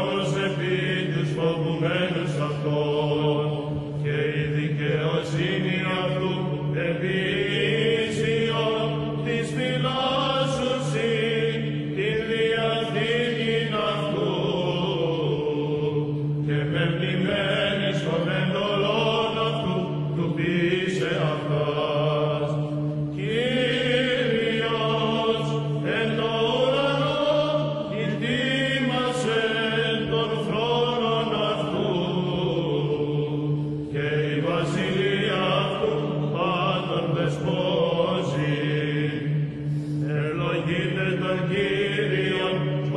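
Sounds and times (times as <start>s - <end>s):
held vocal drone: 0.0s - 42.9s
voices chanting a melody: 23.2s - 33.3s, 34.0s - 39.4s.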